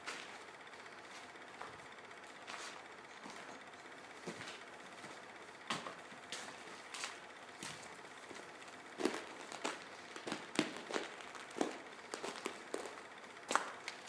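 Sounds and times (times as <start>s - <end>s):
footsteps crunching over rubble: 4.2s - 14.0s.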